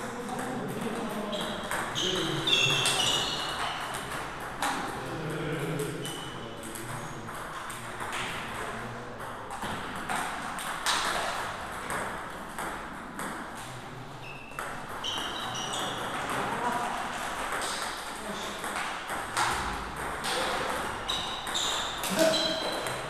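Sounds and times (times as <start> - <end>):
ball bouncing on table: 0.2 - 5.0, 5.9 - 13.7, 14.5 - 23.0
table tennis ball clicking off paddles: 6.1 - 13.7, 14.6 - 23.0.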